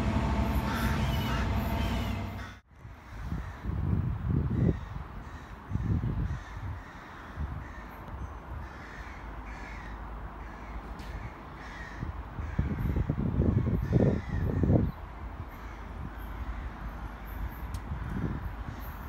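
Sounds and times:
bird cawing: 0.4s - 3.7s, 4.6s - 8.0s, 8.6s - 13.1s, 15.5s - 19.0s
wind gusts on the microphone: 2.7s - 9.8s, 11.1s - 19.0s.

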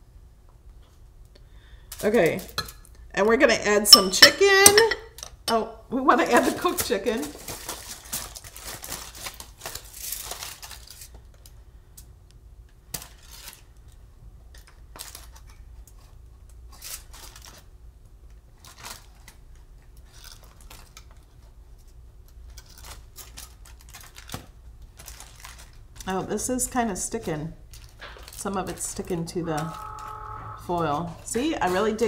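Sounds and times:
aluminium foil crinkling: 6.4s - 12.1s, 12.9s - 29.1s.

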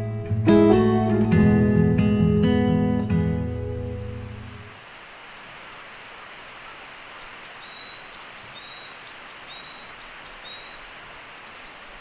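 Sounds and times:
background hiss: 0.0s - 12.0s
small bird chirping: 7.1s - 10.8s.

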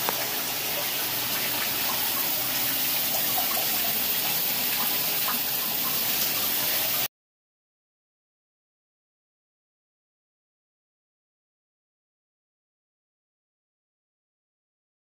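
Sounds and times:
shower running into bathtub: 0.0s - 7.1s.

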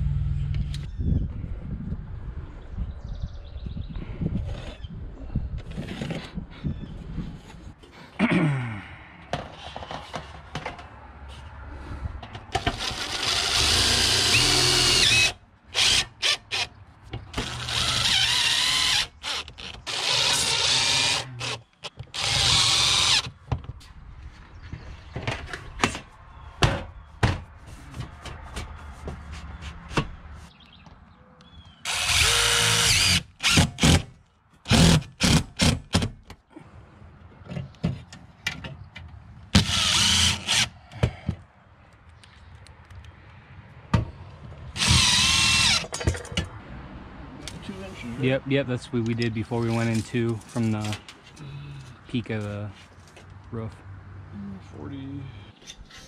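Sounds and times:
drill driving screws into metal: 12.6s - 16.7s, 17.3s - 23.3s, 31.9s - 34.1s, 34.7s - 36.1s, 39.6s - 40.7s, 44.8s - 46.0s.

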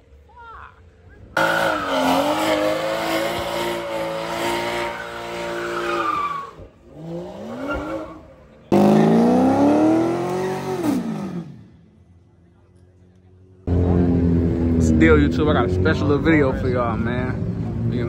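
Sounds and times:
car engine at high revs: 1.4s - 11.8s
car engine revving up: 6.8s - 11.8s.

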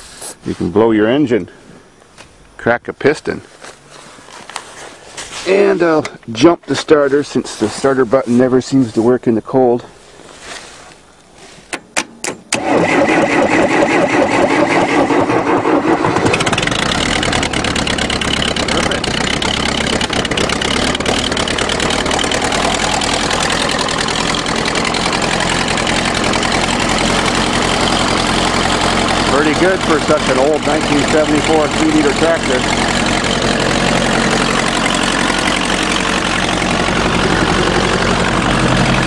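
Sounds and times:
starter cranking: 12.5s - 39.0s
diesel engine running: 12.6s - 39.0s.

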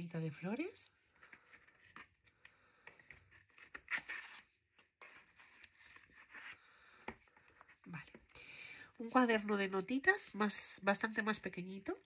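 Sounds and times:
paper and cardboard rustling: 2.9s - 7.9s.

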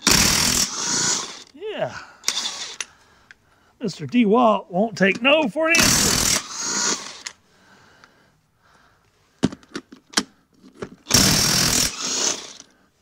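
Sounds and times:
impact wrench hammering: 5.7s - 6.5s, 11.1s - 12.5s.

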